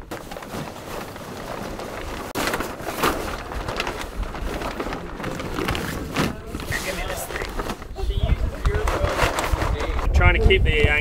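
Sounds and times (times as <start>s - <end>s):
wind rumbling on microphone: 3.5s - 11.0s.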